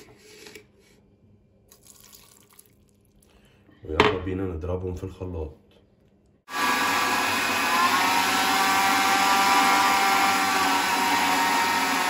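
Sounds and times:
electric blender motor whine: 0:06.5 - 0:12.0.

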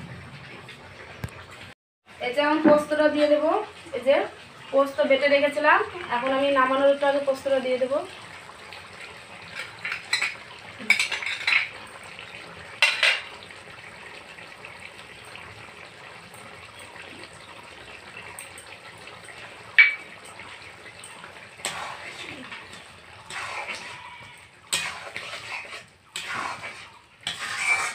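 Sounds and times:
utensils scraping bowl: 0:23.2 - 0:27.9.

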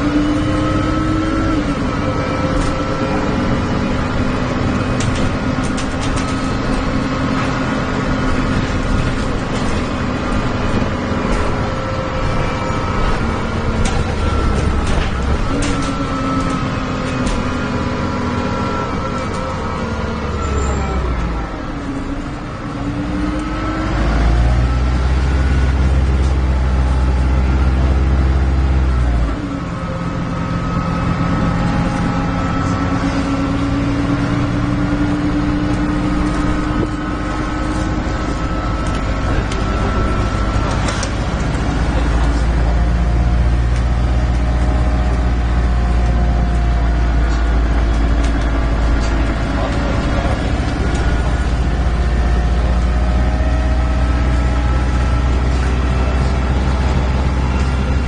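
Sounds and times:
bus diesel engine drone: 0:00.0 - 0:58.0
engine cooling fan: 0:30.6 - 0:58.0.

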